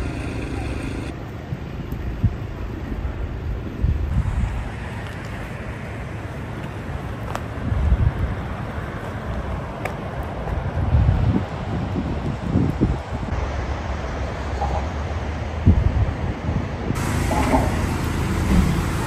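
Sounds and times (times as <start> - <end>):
wind buffeting microphone: 0.9 - 5.3, 7.2 - 13.4, 15.5 - 19.0.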